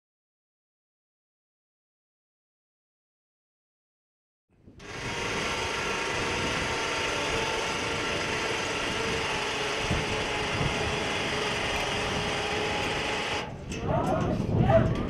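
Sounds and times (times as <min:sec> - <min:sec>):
machine running: 0:04.8 - 0:13.7.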